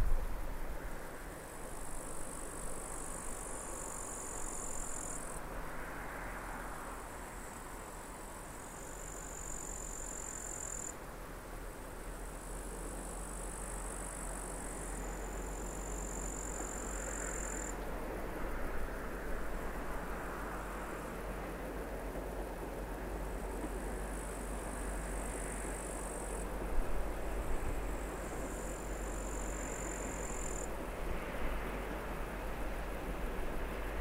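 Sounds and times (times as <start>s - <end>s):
insects chirring: 1.1s - 6.4s, 8.6s - 11.0s, 12.1s - 17.8s, 23.5s - 26.5s, 27.2s - 30.8s
distant diesel locomotive rumbling: 11.3s - 34.0s.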